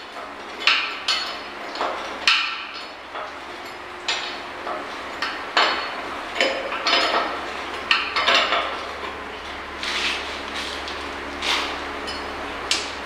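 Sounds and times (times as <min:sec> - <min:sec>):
soft metal scrape: 0:09.8 - 0:10.8.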